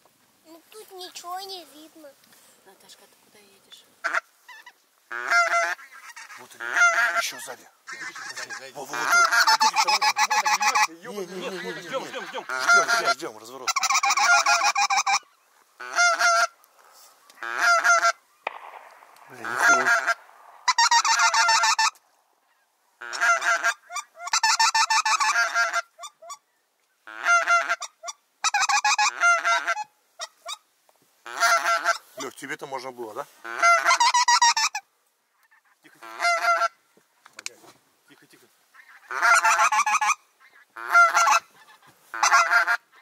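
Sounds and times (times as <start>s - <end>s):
goose honking: 4.0s - 16.6s, 17.3s - 18.6s, 19.2s - 26.4s, 27.1s - 30.6s, 31.2s - 32.4s, 33.4s - 36.8s, 38.7s - 43.0s.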